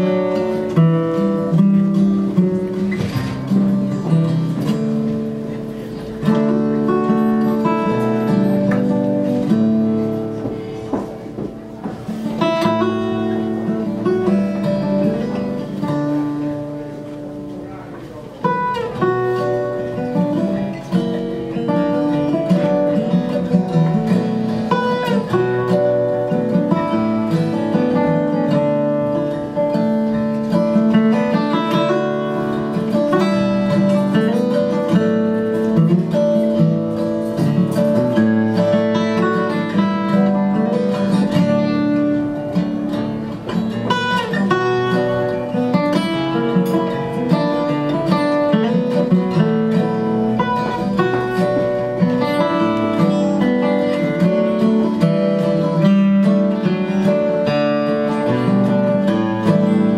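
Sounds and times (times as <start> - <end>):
acoustic guitars duet: 0.0 - 59.9.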